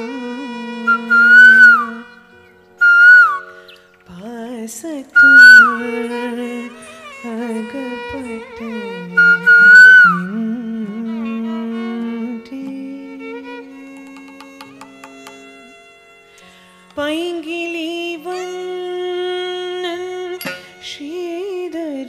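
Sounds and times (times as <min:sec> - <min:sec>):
flute playing ornamented phrases: 0:00.0 - 0:03.6, 0:05.2 - 0:12.6
low sustained melodic line: 0:00.0 - 0:16.2.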